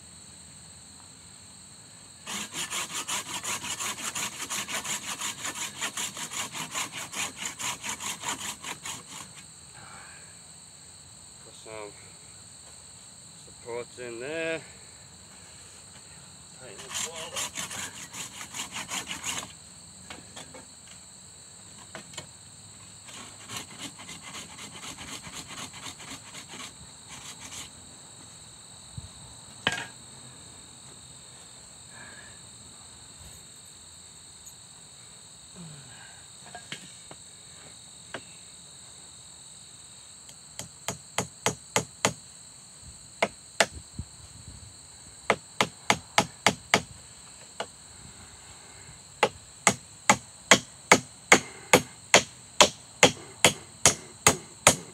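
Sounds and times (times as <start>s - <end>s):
high insect buzz: 0.0s - 54.9s
scraping strokes on wood: 2.2s - 9.4s, 16.6s - 20.6s, 22.8s - 27.8s, 49.6s - 54.9s
hammer blows on nails: 45.3s - 46.9s, 49.2s - 54.9s.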